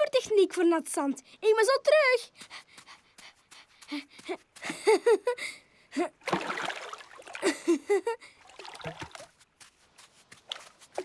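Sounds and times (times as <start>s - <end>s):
water splashing in plastic bucket: 6.2s - 7.5s, 8.4s - 9.4s.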